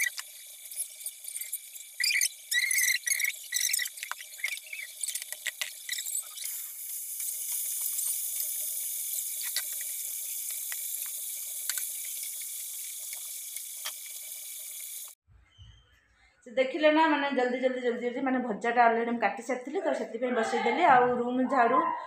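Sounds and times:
food sizzling in hot oil: 0.0s - 15.2s
oil popping and crackling: 0.0s - 15.2s.

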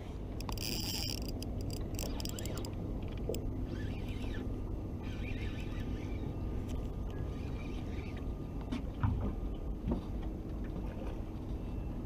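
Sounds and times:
wind and water rumble: 0.0s - 12.0s
fishing gear clicks and taps: 0.4s - 3.4s.

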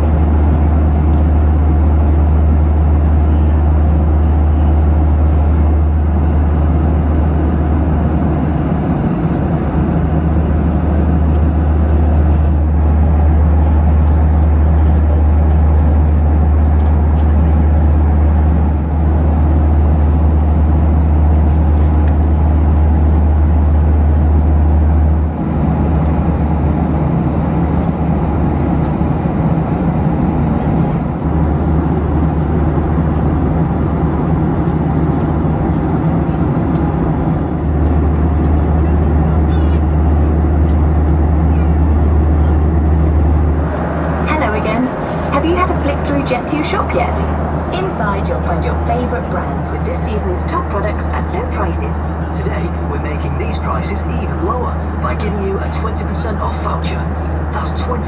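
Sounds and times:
deep engine hum: 0.0s - 58.0s
airflow rushing: 40.2s - 53.0s.

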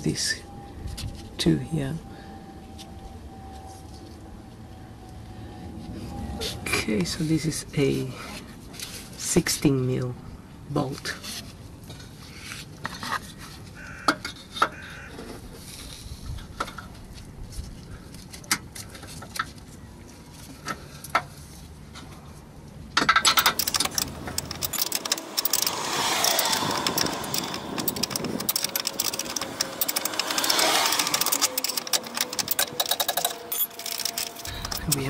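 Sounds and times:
spanner clicking on bolt: 23.1s - 35.0s.

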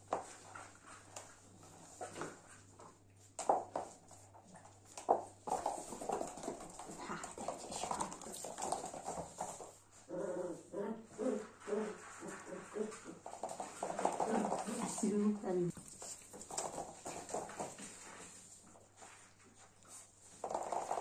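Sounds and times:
claws clicking on laminate floor: 0.1s - 9.8s, 13.0s - 18.5s, 19.8s - 21.0s
puppy play sounds: 0.1s - 21.0s
person's voice: 14.3s - 15.8s.

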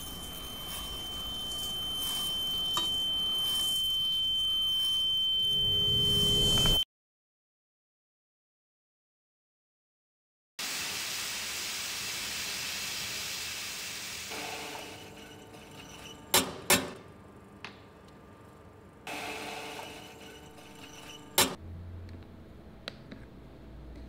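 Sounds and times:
coffee grinder running: 0.0s - 3.8s, 10.8s - 16.0s, 19.1s - 21.0s.

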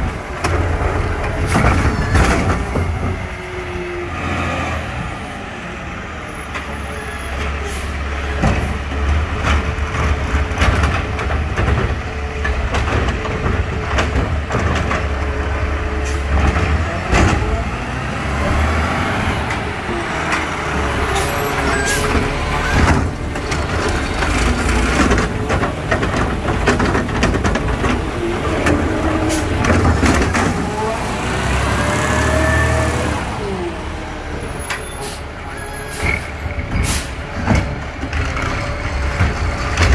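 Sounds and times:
diesel engine rumbling: 0.0s - 39.9s
air brakes hissing: 36.8s - 37.2s.

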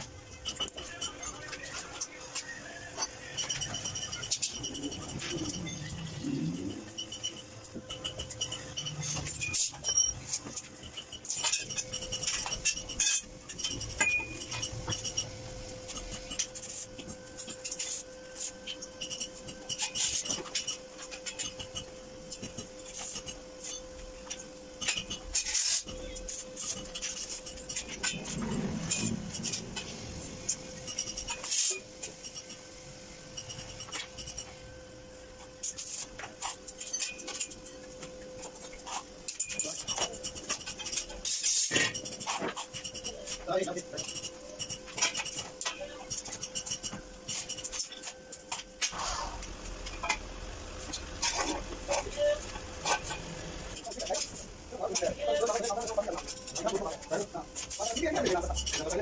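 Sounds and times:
steady hum: 0.0s - 59.0s
metal pipes clinking on concrete: 0.3s - 15.3s.

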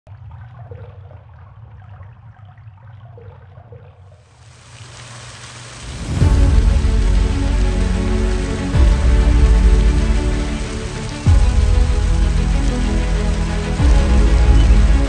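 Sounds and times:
water splashing and dribbling: 0.1s - 15.0s
rush of spraying water: 4.3s - 15.0s
low steady drone: 6.0s - 15.0s
music: 6.2s - 15.0s.

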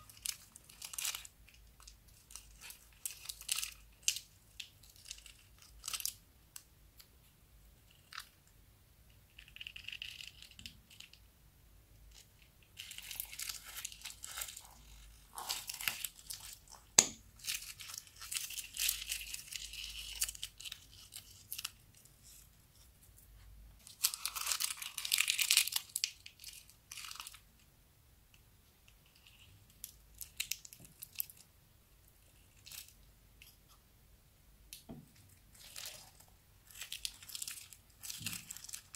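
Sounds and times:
plastic bags crinkling: 35.5s - 38.9s.

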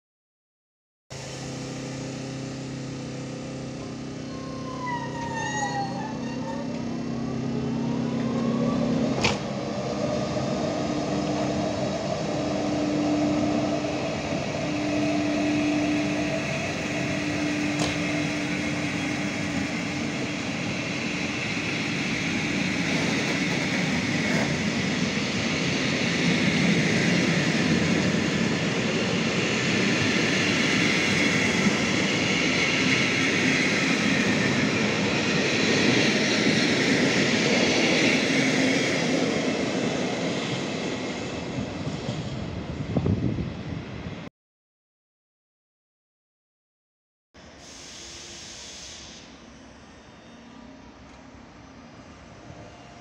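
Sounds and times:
locomotive equipment hum: 1.2s - 35.6s
train wheels rolling on track: 1.2s - 43.8s.

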